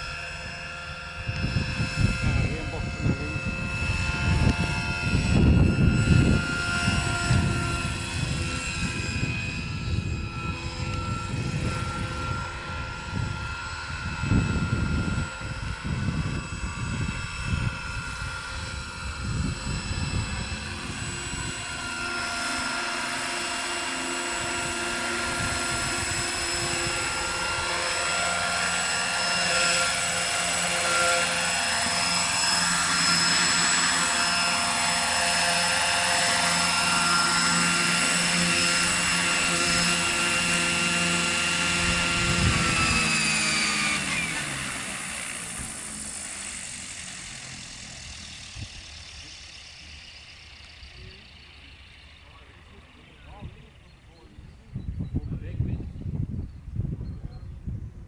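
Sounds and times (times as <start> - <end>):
rotor blade noise: 0.0 - 55.7
rc helicopter motor whine: 0.0 - 58.0
gusty low rumble: 1.1 - 37.4, 41.7 - 44.0, 53.1 - 58.0.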